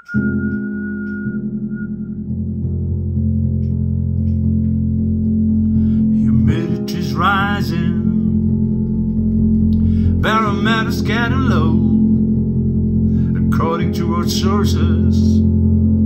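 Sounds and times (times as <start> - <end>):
person singing: 6.0 - 8.6, 10.0 - 12.4, 13.2 - 15.5
disco pop music: 6.1 - 8.4, 10.2 - 12.2.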